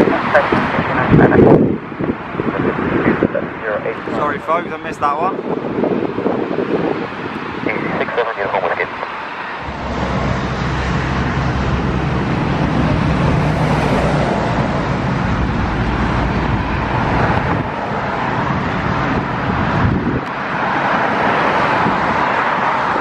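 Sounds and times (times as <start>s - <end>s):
loud steady engine noise: 7.7s - 20.8s.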